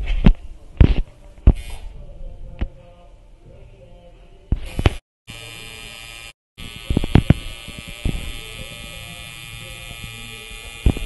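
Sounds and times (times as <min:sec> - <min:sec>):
tattoo machine buzzing: 0:04.6 - 0:11.0.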